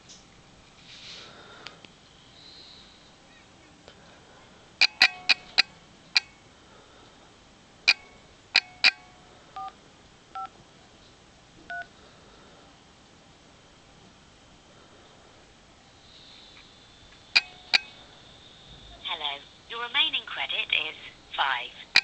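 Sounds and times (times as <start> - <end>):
phone keypad touch-tone beeps: 4.8 - 6.3.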